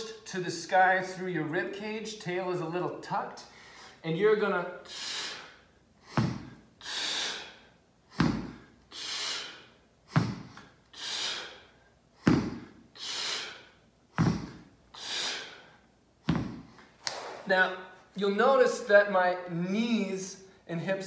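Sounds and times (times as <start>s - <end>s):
strong breathing: 3.4s - 4.0s, 4.8s - 17.6s
dumbbells thudding on rubber floor: 6.2s - 6.6s, 8.2s - 8.6s, 10.2s - 10.6s, 12.2s - 12.7s, 14.2s - 14.7s, 16.2s - 16.8s.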